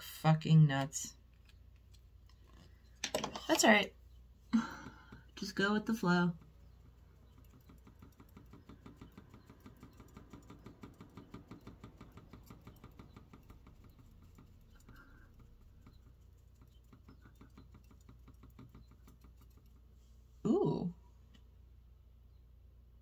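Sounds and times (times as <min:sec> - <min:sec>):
makeup applicator patting face: 0:04.7 - 0:20.0.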